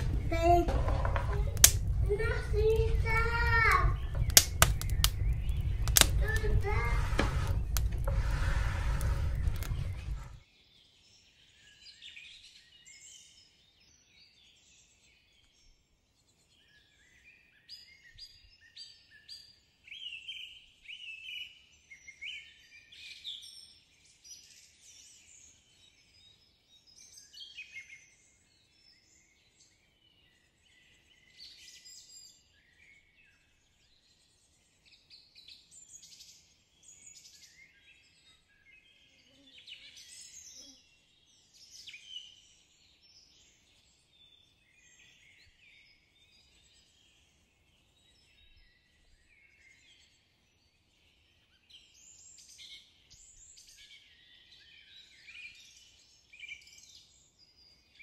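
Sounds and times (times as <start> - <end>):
birds chirping: 0.0 - 10.4.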